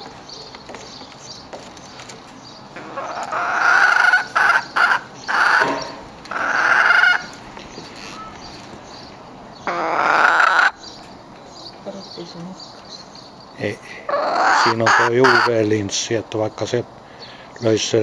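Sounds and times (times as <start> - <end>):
hen squawking: 2.8 - 7.4, 9.6 - 10.9, 14.0 - 15.6.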